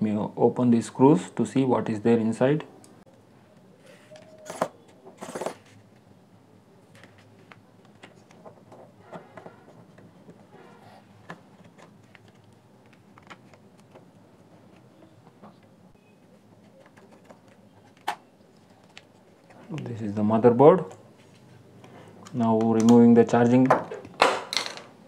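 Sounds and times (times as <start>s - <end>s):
scraping handling noises: 3.5s - 6.1s
metal scraping on plastic: 8.0s - 12.4s.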